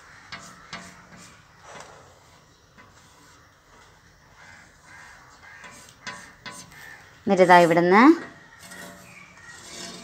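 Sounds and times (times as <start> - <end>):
chalk tapping on blackboard: 0.3 - 1.5, 5.6 - 7.0
chalk scratching on blackboard: 0.3 - 1.6, 5.4 - 7.9, 8.6 - 10.0.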